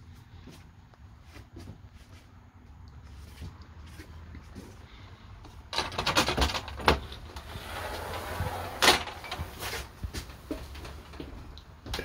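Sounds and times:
bed frame rattling and clattering: 5.7 - 12.0
bed scraping as it moves: 7.4 - 11.3.

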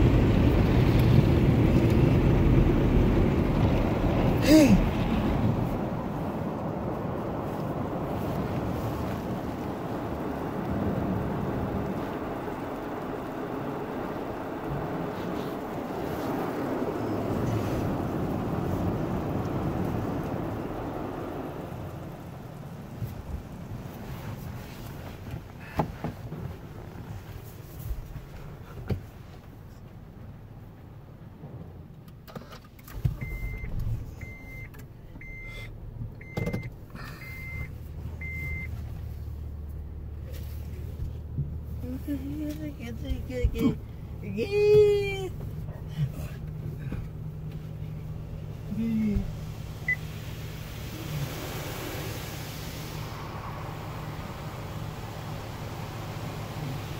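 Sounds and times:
car wash water spraying: 0.0 - 56.9
low steady rumble: 0.0 - 56.9.

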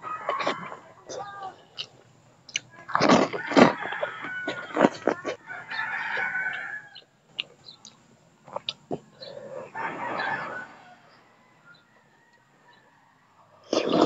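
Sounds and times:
rooster crowing: 0.0 - 1.5, 3.2 - 7.1, 9.2 - 13.7
slurping and chewing food: 1.6 - 9.8, 13.5 - 14.0.

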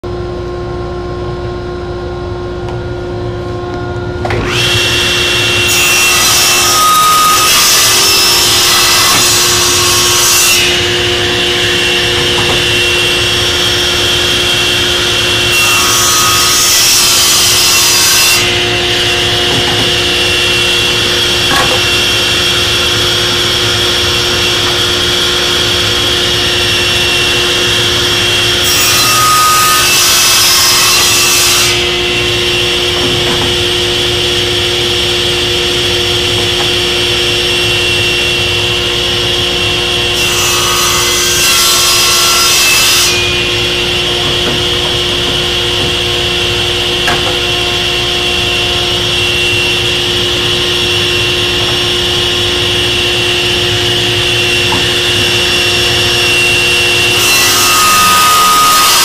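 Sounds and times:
table saw running: 3.4 - 59.0
saw cutting wood: 4.3 - 59.0.

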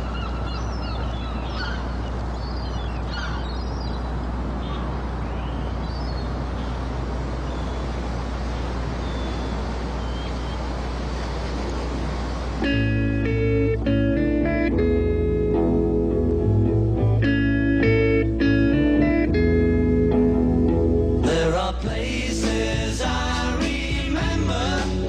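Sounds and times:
steady rumble and hiss: 0.0 - 25.0
high gliding calls: 8.6 - 11.0.

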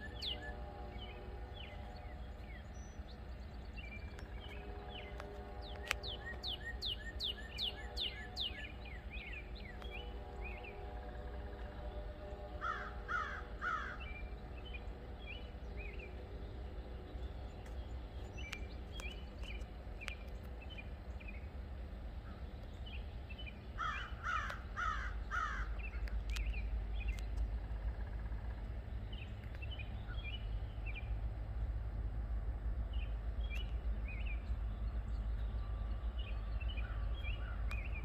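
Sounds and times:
crow cawing: 12.6 - 14.0, 23.8 - 25.8.

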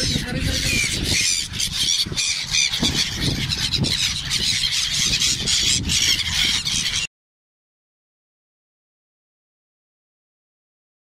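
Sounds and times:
gulls calling: 0.0 - 7.1.

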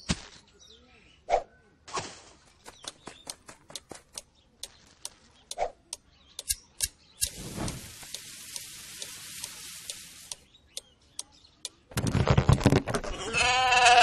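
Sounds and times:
cartoon tapping footsteps: 2.6 - 6.6.

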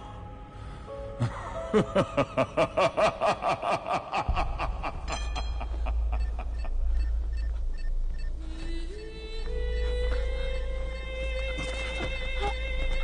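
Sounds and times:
low rumble: 4.3 - 11.5.

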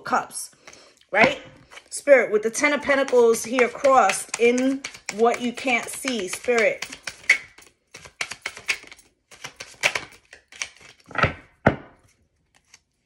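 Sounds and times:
cards clicking and tapping: 2.6 - 12.8.

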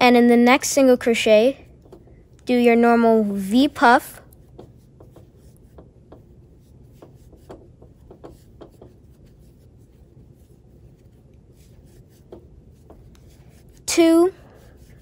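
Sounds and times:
yarn rubbing on crochet hook: 3.4 - 15.0.

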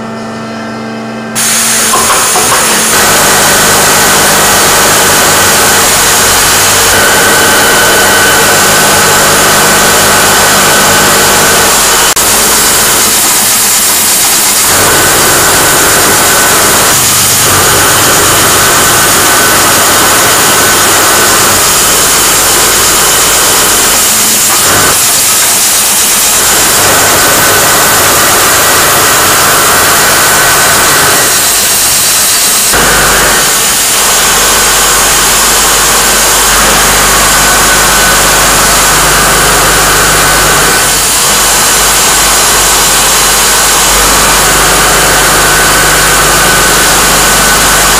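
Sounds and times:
production machinery din: 0.0 - 47.9
steady machine hum: 0.0 - 47.9.

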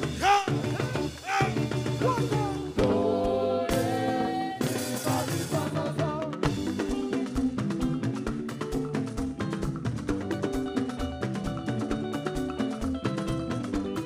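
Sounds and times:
drums and percussion: 0.0 - 14.0
gospel band playing: 0.0 - 14.0
person singing short phrases: 0.1 - 2.8.

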